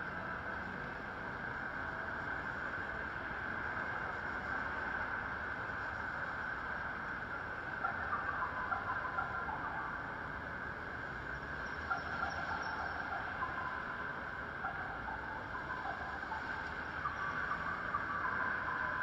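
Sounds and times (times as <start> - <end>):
cars on wet road: 0.0 - 19.0.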